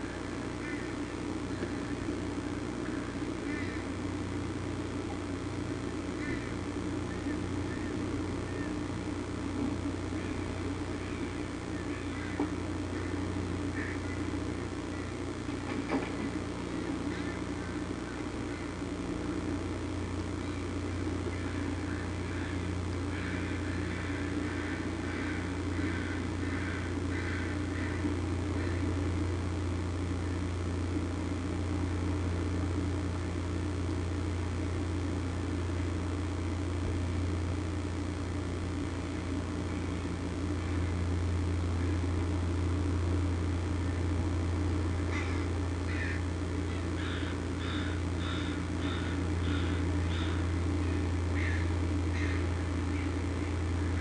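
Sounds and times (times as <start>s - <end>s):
bird calls: 0.0s - 2.0s, 2.8s - 3.9s, 6.2s - 8.9s, 10.2s - 14.3s, 14.9s - 18.7s, 20.4s - 28.9s, 45.1s - 53.5s
steady low hum: 0.0s - 54.0s.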